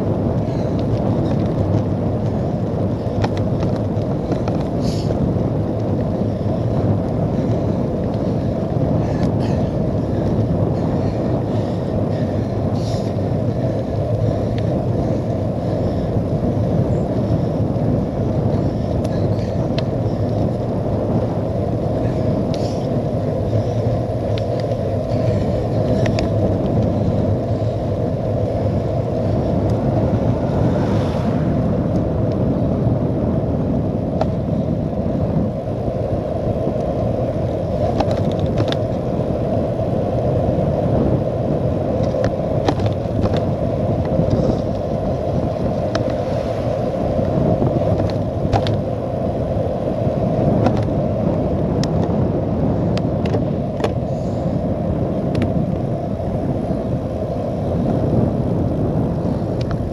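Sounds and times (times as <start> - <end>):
bike tyres rolling on tarmac: 0.0 - 59.9
wind rush: 0.0 - 59.9
small clicks and ticks: 3.0 - 6.2, 14.1 - 15.2, 23.5 - 27.7, 37.8 - 39.0, 42.0 - 44.9, 51.8 - 52.1, 59.6 - 59.8.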